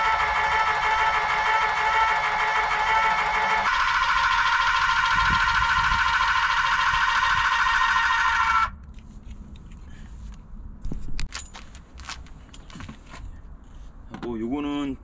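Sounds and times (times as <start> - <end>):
car jack motor whining: 0.0 - 8.7.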